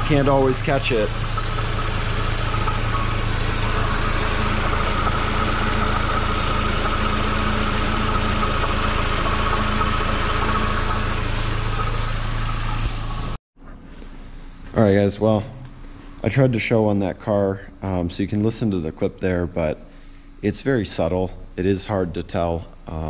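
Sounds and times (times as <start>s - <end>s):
car engine idling: 0.0s - 13.4s.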